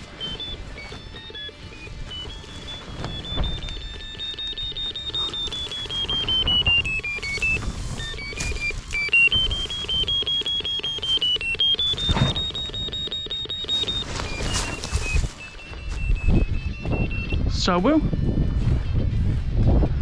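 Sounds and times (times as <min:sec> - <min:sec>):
short electronic beeps: 0:00.0 - 0:17.8
straw rustling and scraping: 0:05.6 - 0:09.1, 0:13.8 - 0:16.0.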